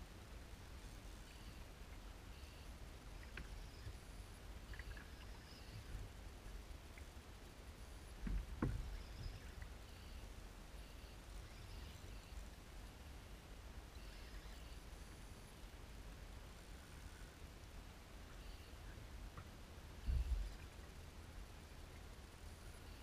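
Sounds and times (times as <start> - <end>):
thump: 8.2 - 8.9.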